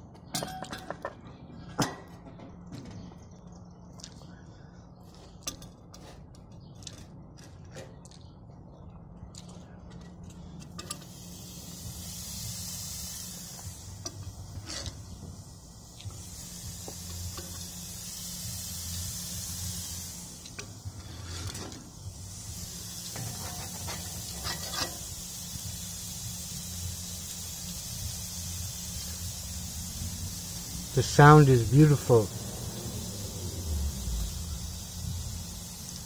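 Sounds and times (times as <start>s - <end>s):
patties sizzling on grill: 10.8s - 36.0s.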